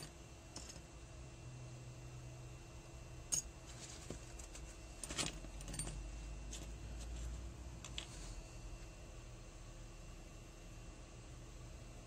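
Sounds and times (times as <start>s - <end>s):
metal parts clicking and clinking: 0.0s - 0.9s, 3.3s - 6.7s.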